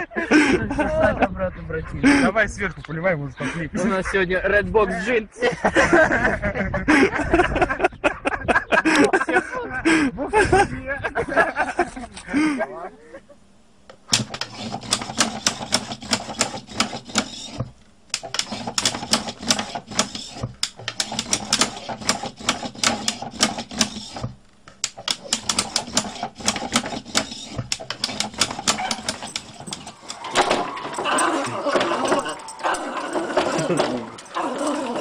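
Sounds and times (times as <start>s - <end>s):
motorized arm and lid clacking: 13.9s - 35.0s
toggle switches clicking: 20.6s - 23.9s, 24.7s - 30.4s.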